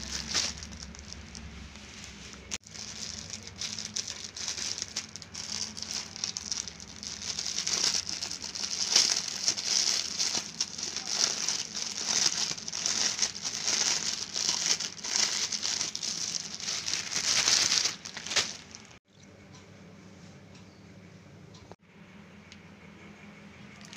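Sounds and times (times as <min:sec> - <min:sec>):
plastic bag crinkling: 0:00.0 - 0:19.0.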